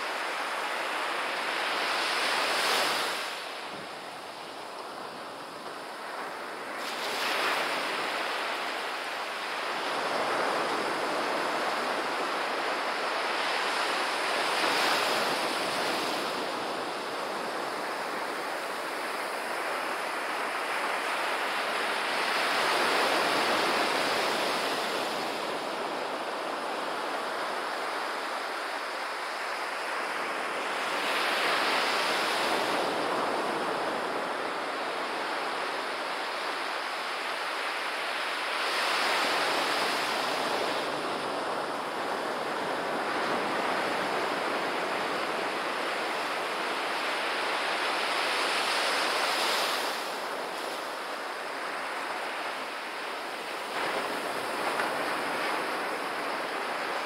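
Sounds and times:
ocean surf breaking on beach: 0.0s - 57.0s.

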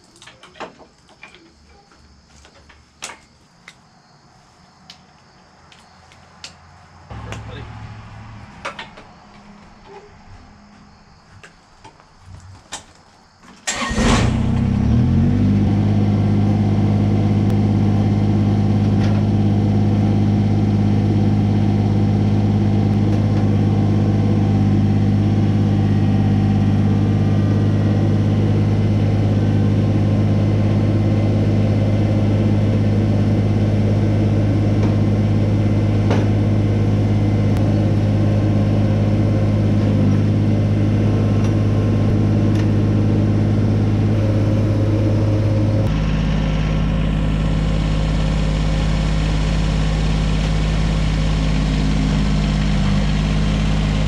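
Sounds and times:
starter motor cranking: 13.6s - 14.8s
diesel engine idling: 13.6s - 54.0s.

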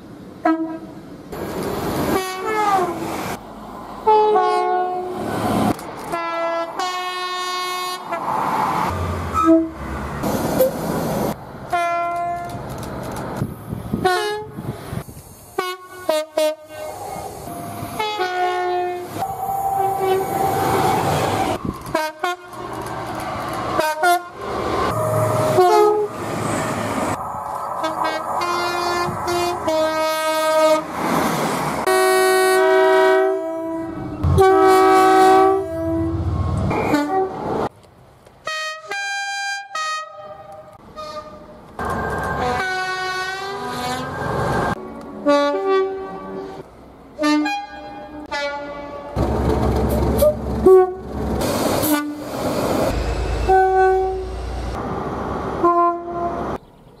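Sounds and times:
trains rumbling: 0.0s - 38.3s, 40.4s - 56.7s
train horns: 0.4s - 1.0s, 2.1s - 3.0s, 4.0s - 5.2s, 6.1s - 8.3s, 9.3s - 9.8s, 11.7s - 12.6s, 14.0s - 14.7s, 15.6s - 22.7s, 23.7s - 26.2s, 27.8s - 30.9s, 31.8s - 37.4s, 38.5s - 41.5s, 42.2s - 46.6s, 47.2s - 49.2s, 50.2s - 51.1s, 51.8s - 52.3s, 52.9s - 54.8s, 55.6s - 56.6s.

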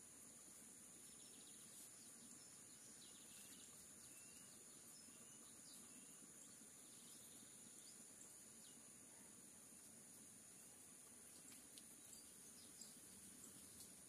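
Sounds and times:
bird chirps: 1.0s - 8.9s.

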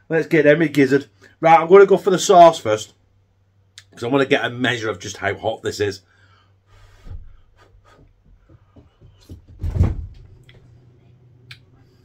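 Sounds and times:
heavy thud on door: 9.1s - 10.3s.

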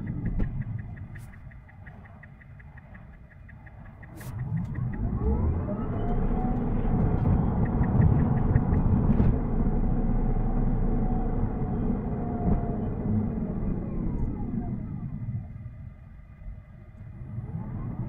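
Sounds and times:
quick light ticks: 0.0s - 9.3s
road and tyre rumble: 0.0s - 18.0s.

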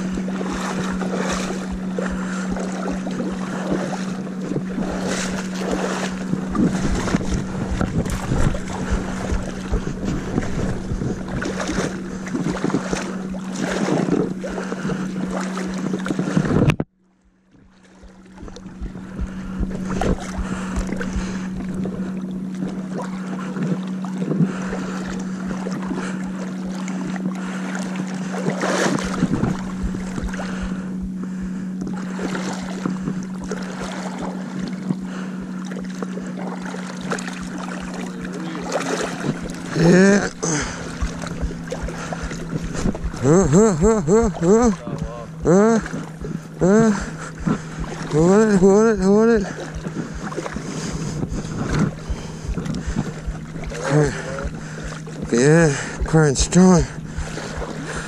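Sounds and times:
water splashing: 0.0s - 16.8s, 17.5s - 58.0s
wind buffeting microphone: 0.0s - 16.8s, 18.0s - 22.9s, 28.9s - 33.5s, 39.1s - 58.0s
boat motor humming: 0.0s - 58.0s.

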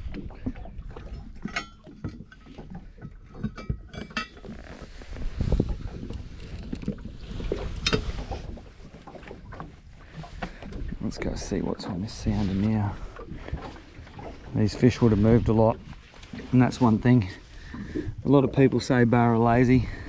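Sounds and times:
anchor chain clinking and rattling: 5.8s - 8.0s.

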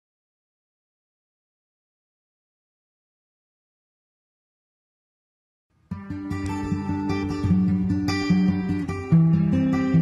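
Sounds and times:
acoustic guitar plucked and strummed: 5.8s - 10.0s.

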